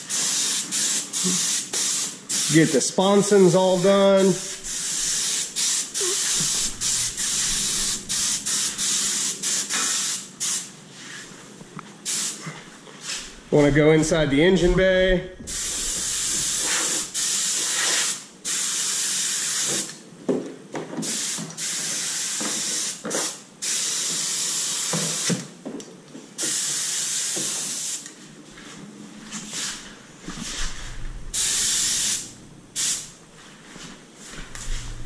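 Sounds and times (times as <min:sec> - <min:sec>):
spray gun hissing bursts: 0:00.0 - 0:10.7, 0:12.0 - 0:12.4, 0:15.5 - 0:19.7, 0:21.0 - 0:25.3, 0:26.4 - 0:28.0, 0:30.4 - 0:33.1.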